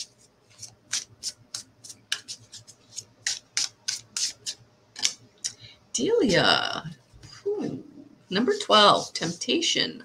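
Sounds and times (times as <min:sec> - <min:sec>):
cards being shuffled: 0:00.0 - 0:05.2.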